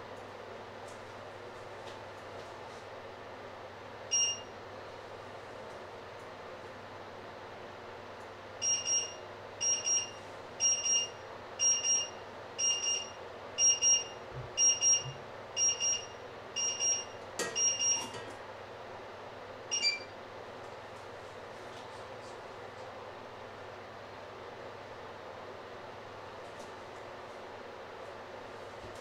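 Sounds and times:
timer alarm double beeps: 4.1 - 4.6, 8.6 - 18.1, 19.7 - 20.1.

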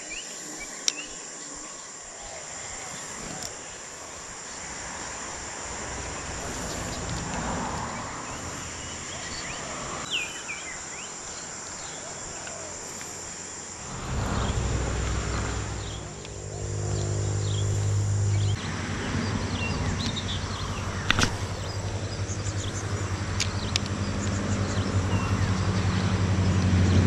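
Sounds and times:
high-pitched insect chorus: 0.0 - 26.8
low steady hum: 12.7 - 26.2.

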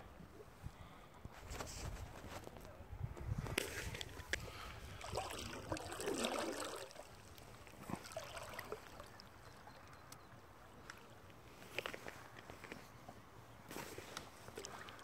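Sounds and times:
paddle swishing water: 3.5 - 10.0, 13.7 - 15.0
water drips: 5.0 - 10.3, 14.5 - 15.0.

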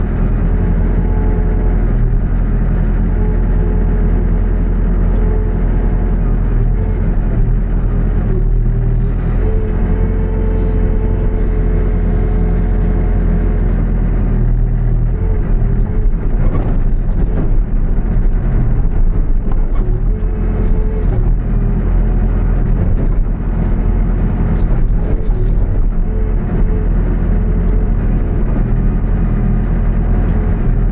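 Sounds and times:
diesel engine running: 0.0 - 30.9
short knocks and scrapes: 15.2 - 21.5.

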